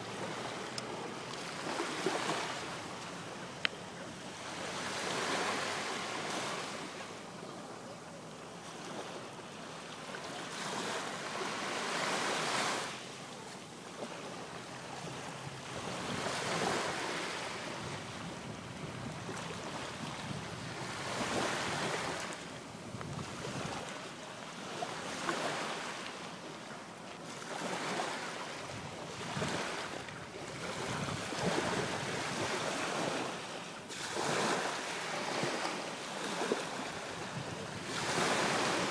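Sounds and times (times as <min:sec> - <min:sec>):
waves breaking on sand: 0:00.0 - 0:07.4, 0:08.4 - 0:38.9
wind on microphone: 0:15.8 - 0:24.0, 0:28.6 - 0:33.2, 0:37.0 - 0:38.9.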